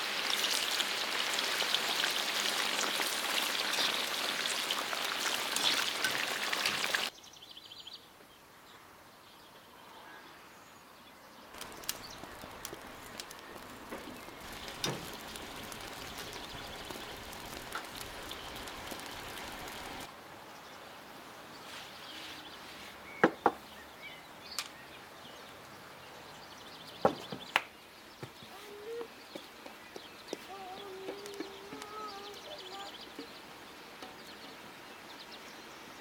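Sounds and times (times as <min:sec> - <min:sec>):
sizzling in a pan: 0:00.0 - 0:07.1, 0:11.6 - 0:20.1.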